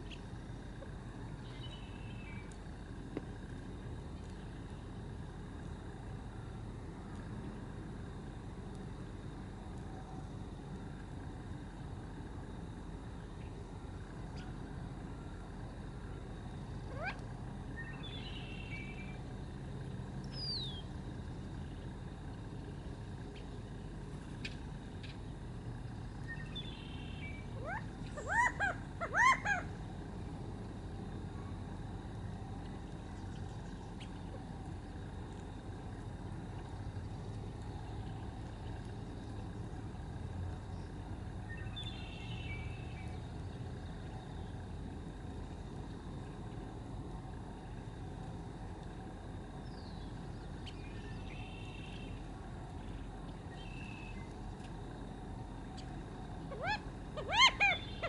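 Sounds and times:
low background rumble: 0.0s - 58.0s
quail calling: 16.9s - 17.2s, 27.6s - 29.8s, 56.5s - 58.0s.

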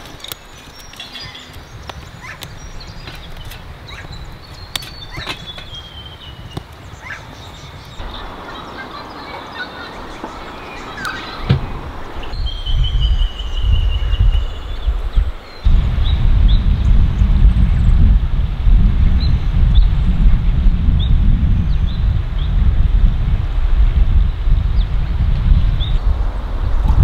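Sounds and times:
birds chirping: 0.0s - 18.2s
wind rumbling on microphone: 0.0s - 27.0s.

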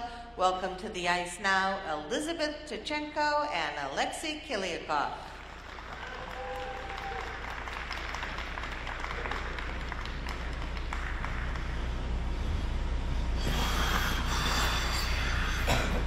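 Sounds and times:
low steady hum: 0.0s - 16.0s
crowd applause: 5.4s - 11.9s.

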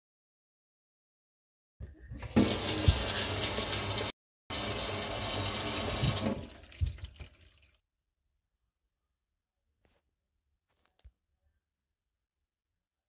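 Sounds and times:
tap running water into sink: 2.2s - 7.7s.

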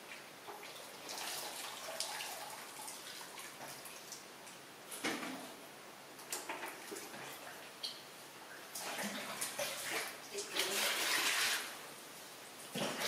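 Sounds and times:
water pouring and splashing into basin: 0.5s - 4.2s, 8.7s - 11.8s.

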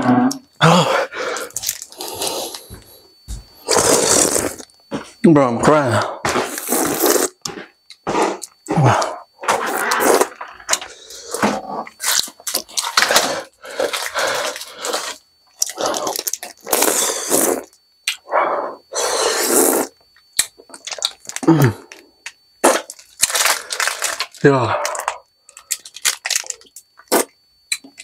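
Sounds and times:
man groaning: 0.6s - 1.1s, 8.7s - 9.2s, 21.4s - 21.9s
man breathing hard through mouth: 0.6s - 4.3s, 18.2s - 19.8s
wet mouth sounds sucking: 3.6s - 4.7s, 6.4s - 8.6s, 15.0s - 18.2s, 19.0s - 20.0s.

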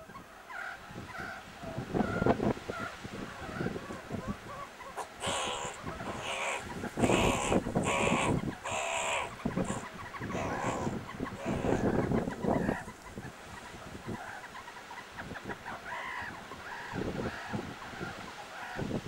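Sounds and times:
meerkats rasping calls: 4.8s - 14.6s.

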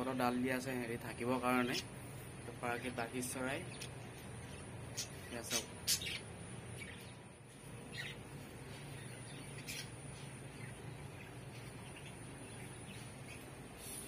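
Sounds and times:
low steady hum: 0.0s - 14.0s
budgerigars chirping: 3.4s - 7.2s, 7.8s - 13.6s.

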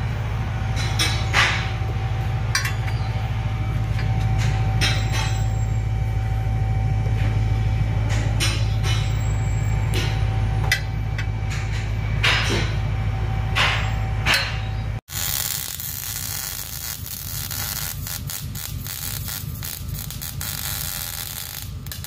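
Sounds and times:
steady low hum: 0.0s - 22.0s
welding arc crackling: 15.1s - 22.0s.

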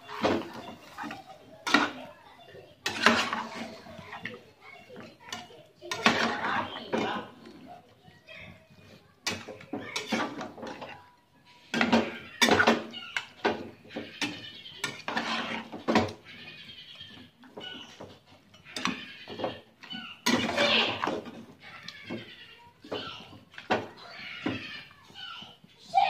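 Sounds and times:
metal spatula scraping a wok: 2.8s - 4.4s, 5.2s - 7.4s, 9.2s - 21.4s.

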